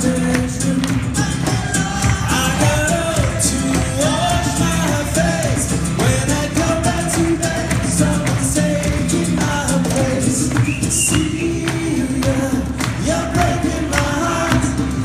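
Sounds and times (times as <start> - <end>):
guitars: 0.0 - 15.0
hand drum beat: 0.0 - 15.0
person singing: 0.0 - 15.0.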